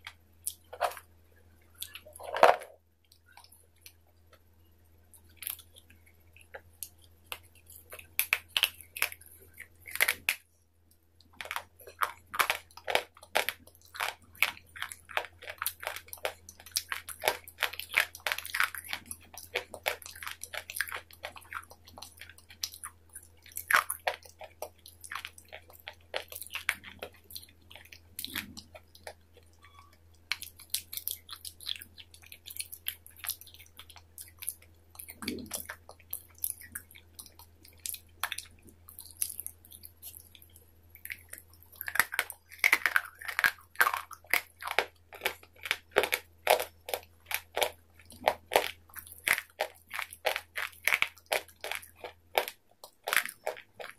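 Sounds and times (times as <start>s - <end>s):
crisp crunching and chewing: 1.7s - 4.0s, 5.2s - 10.5s, 11.2s - 53.9s.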